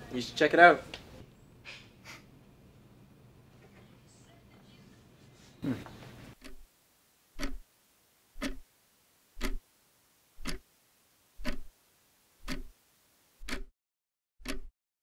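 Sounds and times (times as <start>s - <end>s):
faint background hiss: 0.0s - 13.4s
clock ticking: 6.4s - 6.7s, 7.4s - 7.7s, 8.3s - 8.7s, 9.4s - 9.6s, 10.4s - 10.7s, 11.4s - 11.7s, 12.4s - 12.8s, 13.4s - 13.7s, 14.4s - 14.7s.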